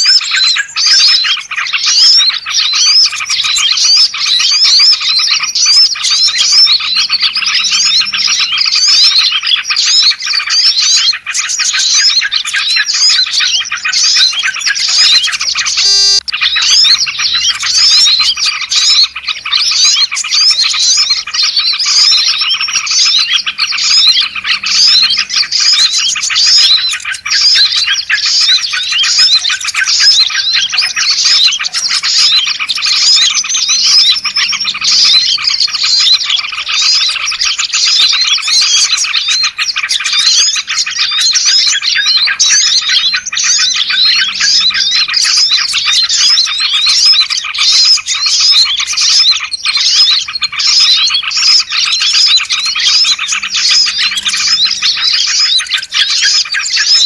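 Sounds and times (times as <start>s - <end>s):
songbirds chirping chorus: 0.0s - 57.0s.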